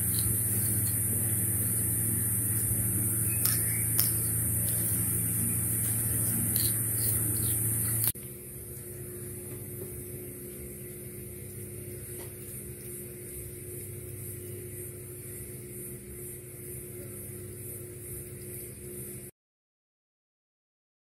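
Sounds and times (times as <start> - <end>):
high hiss: 0.0 - 8.2
low hum with held tones: 0.0 - 19.3.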